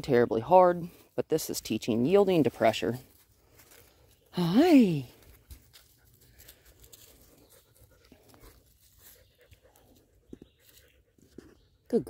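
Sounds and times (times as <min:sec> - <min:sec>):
faint rustles: 0:05.0 - 0:11.7.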